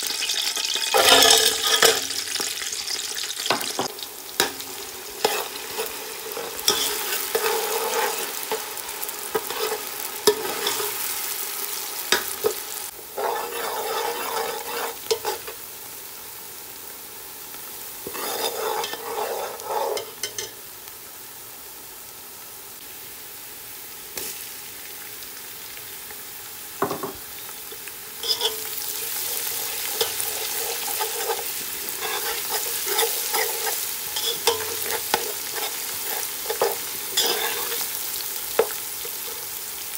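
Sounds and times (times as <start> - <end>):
onions sizzling in oil: 0.0 - 39.9
spoon scraping and stirring: 1.0 - 2.0, 5.2 - 8.6, 9.4 - 11.0, 13.2 - 15.5, 18.1 - 20.5, 28.2 - 37.9.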